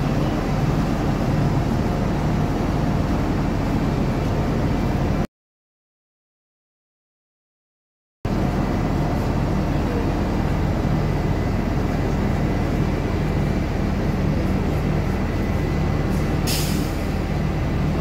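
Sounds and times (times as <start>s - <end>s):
diesel bus engine idling: 0.0s - 5.3s, 8.3s - 18.0s
short hiss: 16.5s - 17.0s.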